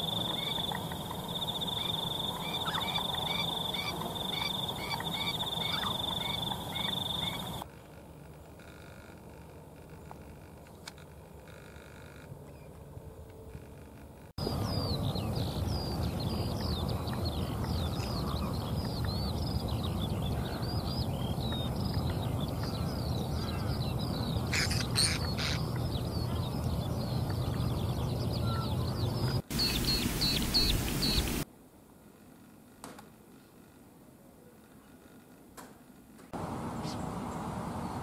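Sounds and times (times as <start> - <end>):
birds chirping and calling: 0.0 - 7.6, 14.4 - 31.4.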